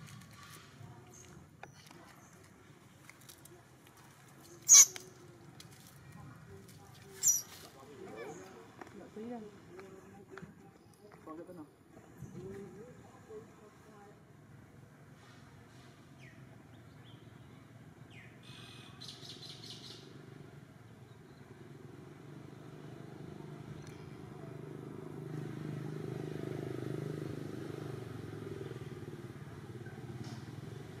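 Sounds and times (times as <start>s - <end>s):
birds chirping: 4.5s - 5.1s, 7.2s - 7.6s
engine hum: 11.9s - 31.0s.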